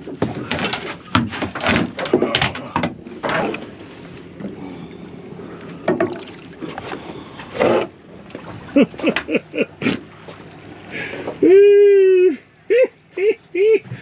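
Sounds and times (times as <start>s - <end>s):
gaff knocking against boat: 5.8s - 6.3s.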